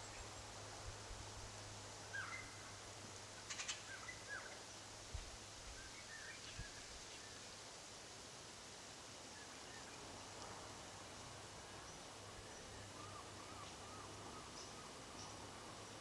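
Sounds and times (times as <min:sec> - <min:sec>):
faint bird chirps: 0:02.1 - 0:02.6.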